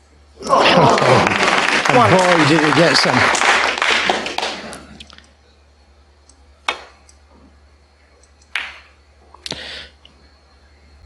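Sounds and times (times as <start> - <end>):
snooker balls clicking: 6.6 - 7.2, 8.3 - 9.6.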